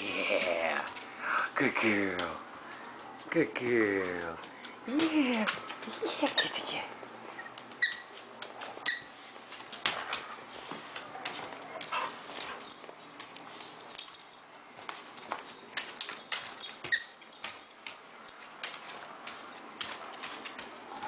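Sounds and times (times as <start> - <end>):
dog claws clicking on wood floor: 0.1 - 21.0
squeaky toy squeaks: 7.8 - 8.1.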